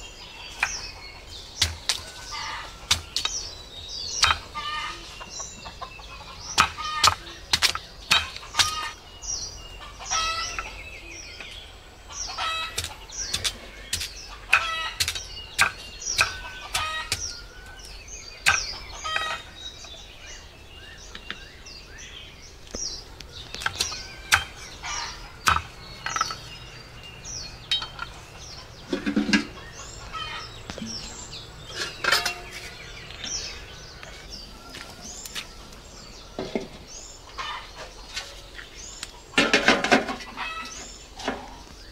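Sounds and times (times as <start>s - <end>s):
chicks cheeping: 0.0s - 21.9s, 22.5s - 39.4s
chickens clucking: 4.2s - 9.0s, 9.8s - 10.8s, 12.1s - 17.3s, 18.4s - 19.6s, 23.2s - 35.8s, 36.4s - 41.8s.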